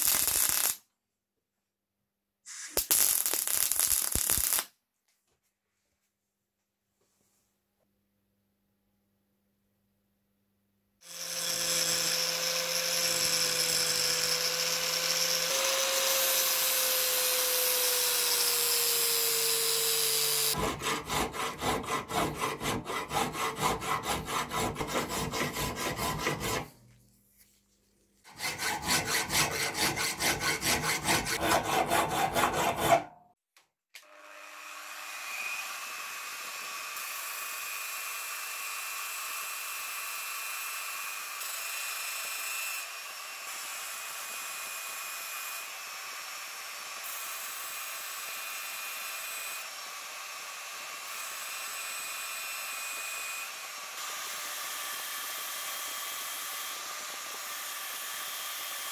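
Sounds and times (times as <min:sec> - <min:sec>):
angle grinder cutting steel: 0:00.0 - 0:00.8, 0:11.0 - 0:26.8, 0:28.3 - 0:33.2, 0:34.0 - 0:58.9
hand file rasping on steel: 0:20.4 - 0:26.9, 0:28.2 - 0:33.2.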